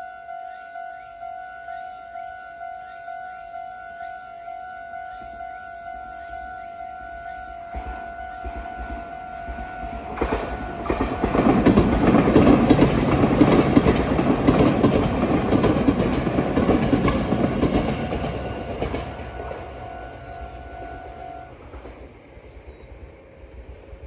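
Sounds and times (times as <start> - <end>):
crossing warning bell ringing: 0.0 - 21.9
heavy train rumble: 0.0 - 24.0
train wheels clacking: 7.2 - 22.0.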